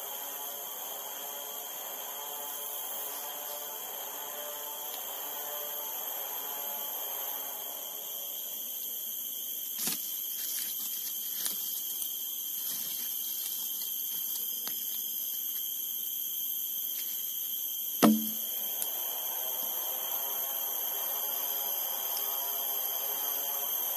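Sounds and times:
forest insects droning: 0:00.0 - 0:23.9
wooden block knocking on log: 0:18.0 - 0:18.4.

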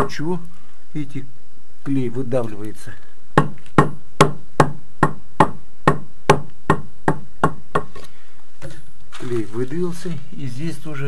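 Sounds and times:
mallet tapping masonry block: 0:03.4 - 0:07.9.

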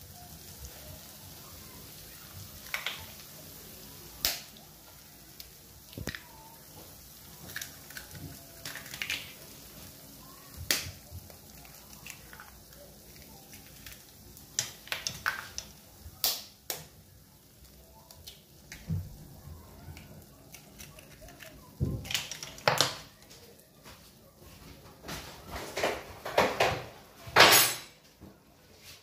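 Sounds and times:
eggshells cracking: 0:02.6 - 0:03.3, 0:05.4 - 0:06.3, 0:07.1 - 0:16.9, 0:19.9 - 0:23.3.

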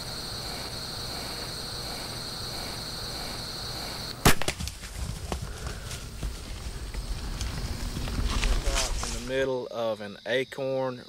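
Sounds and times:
high-pitched hiss: 0:00.0 - 0:04.2
bow firing snap: 0:04.2 - 0:04.8
crackles and rustles in dry leaves: 0:04.5 - 0:09.5.

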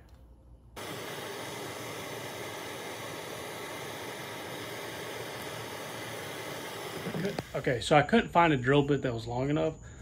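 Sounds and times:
gas torch hissing: 0:00.8 - 0:08.6.

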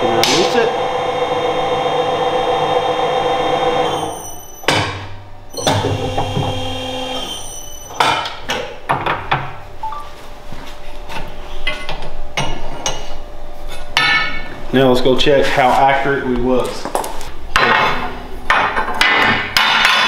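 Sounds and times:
tube bender motor whine: 0:00.0 - 0:04.8, 0:05.5 - 0:08.0.

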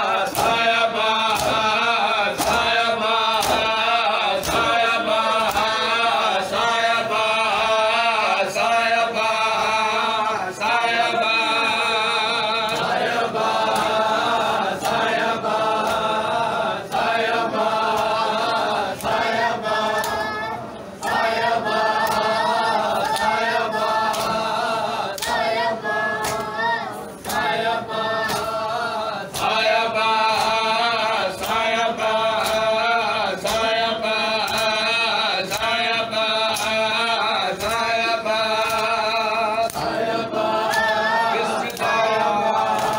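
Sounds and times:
men chanting a lament: 0:00.0 - 0:42.9
hands slapping chests: 0:00.2 - 0:05.8, 0:22.0 - 0:22.4, 0:24.0 - 0:24.5, 0:25.1 - 0:25.6, 0:26.2 - 0:26.6, 0:28.2 - 0:28.6, 0:31.4 - 0:31.7, 0:41.6 - 0:42.0, 0:42.6 - 0:42.9.

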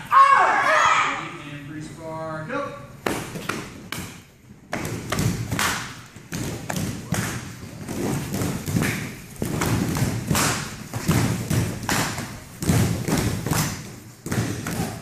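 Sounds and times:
feet stamping on foam mats: 0:04.7 - 0:15.0.

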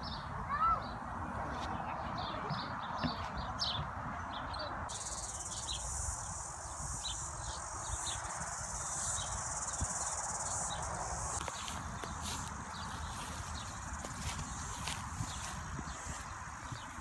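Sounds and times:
bird chirps: 0:02.2 - 0:17.0
insects buzzing: 0:04.9 - 0:17.0.

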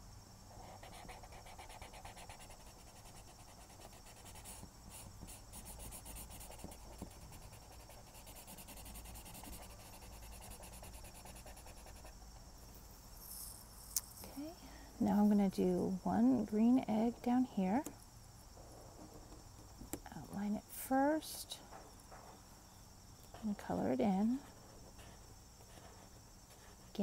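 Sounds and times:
marker scrubbing on paper: 0:00.6 - 0:12.1.

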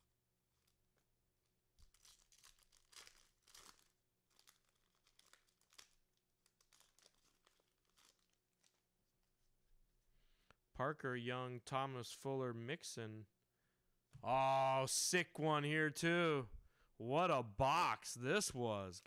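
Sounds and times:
card pack wrapper crinkling and tearing: 0:01.7 - 0:09.2.

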